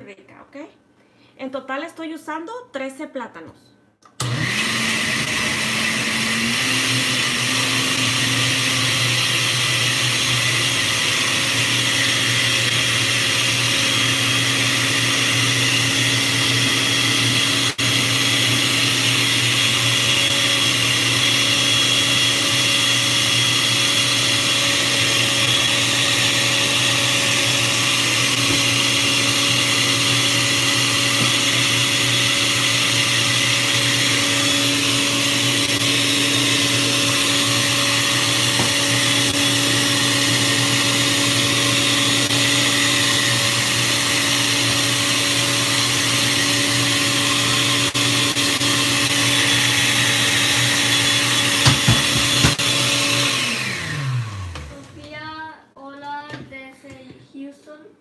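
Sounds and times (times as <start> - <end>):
blender running: 4.1 - 55.3.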